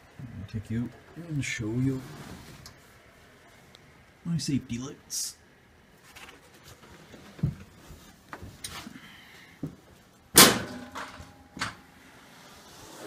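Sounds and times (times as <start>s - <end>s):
loud bang: 10.4s - 11.4s.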